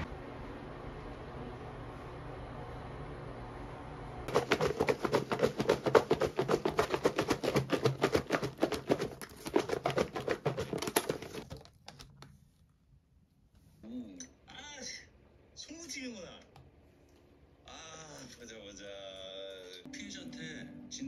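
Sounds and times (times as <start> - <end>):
plastic container crackling: 4.3 - 12.0.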